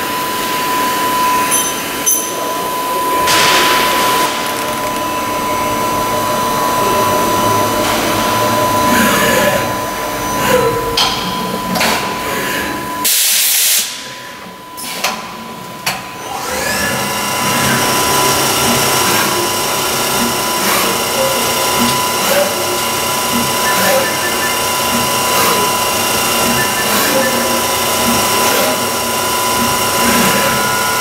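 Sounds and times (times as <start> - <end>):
machine whine: 0.0 - 31.0
spindle whining up in pitch: 17.4 - 30.9.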